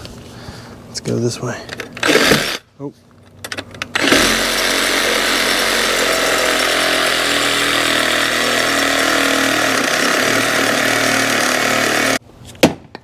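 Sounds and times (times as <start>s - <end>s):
reciprocating saw cutting wood: 4.0s - 12.2s.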